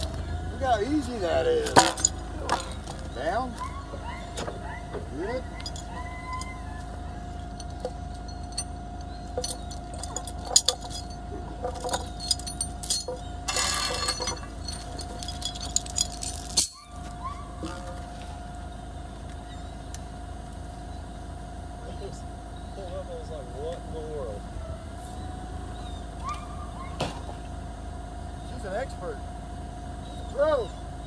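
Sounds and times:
forklift engine idling: 0.0s - 31.0s
chain clinking and rattling: 1.5s - 4.8s, 5.4s - 18.0s.

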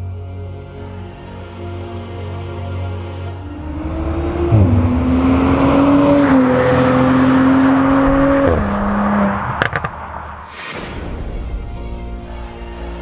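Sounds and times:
car engine accelerating through gears: 3.4s - 10.2s.

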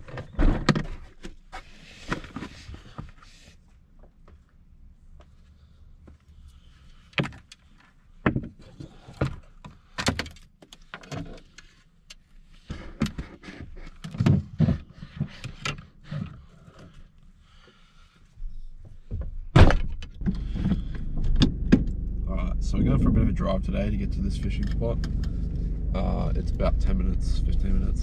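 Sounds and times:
car engine running: 20.2s - 28.0s.

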